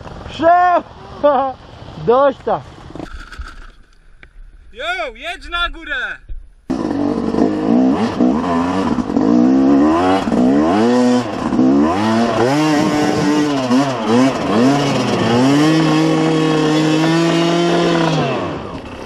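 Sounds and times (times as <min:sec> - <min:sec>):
motorcycle engine revving: 0:06.7 - 0:19.0.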